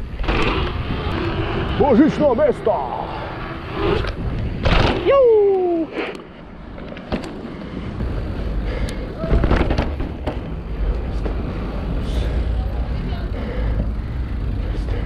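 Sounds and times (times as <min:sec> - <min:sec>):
wind and tyre rumble: 0:00.0 - 0:15.0
sharp knocks and rattles: 0:09.3 - 0:10.6.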